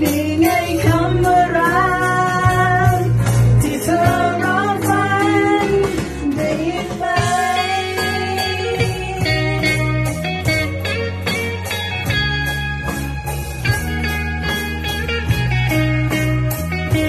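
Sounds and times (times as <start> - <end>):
guitars: 0.0 - 17.0
steady bass line: 0.0 - 17.0.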